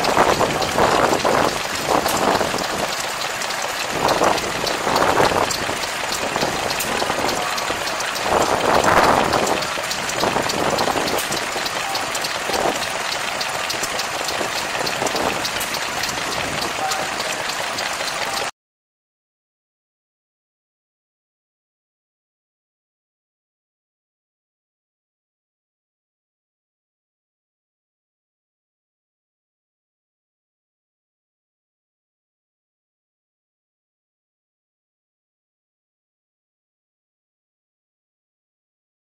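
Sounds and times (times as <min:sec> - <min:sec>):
small engine running: 0:00.0 - 0:18.5
voices in background: 0:07.2 - 0:10.2, 0:16.4 - 0:18.5.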